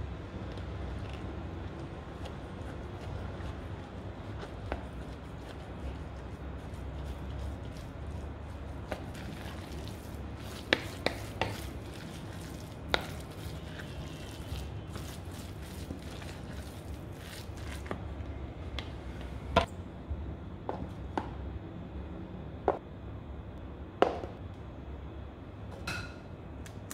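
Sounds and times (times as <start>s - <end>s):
spoon mashing wet food: 0.3s - 19.4s.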